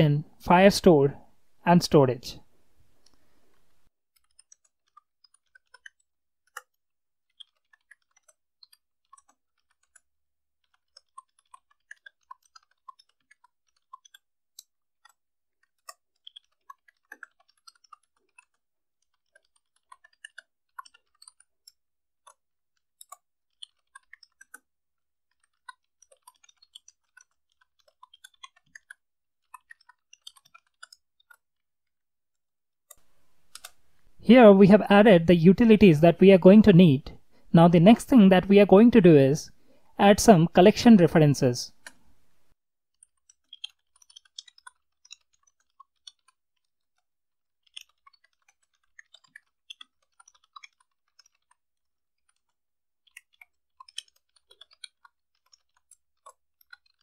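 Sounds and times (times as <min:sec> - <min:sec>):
computer keyboard typing: 0:04.2 - 0:22.4, 0:23.0 - 0:24.7.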